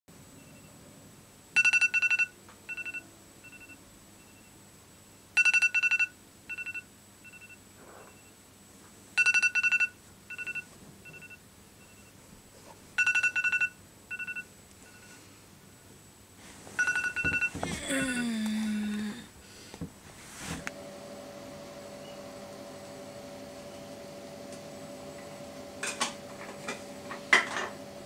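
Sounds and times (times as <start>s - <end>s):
smartphone ringtone beeps: 1.6s - 3.8s, 5.4s - 8.3s, 9.2s - 12.1s, 13.0s - 15.2s, 16.8s - 17.6s.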